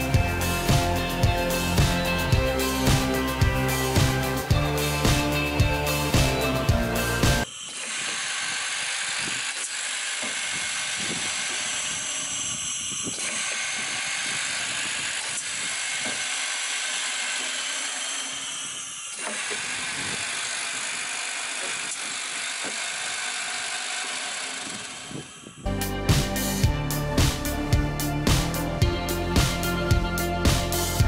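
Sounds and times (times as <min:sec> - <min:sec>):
boring machine hissing whir: 0:06.0 - 0:25.7.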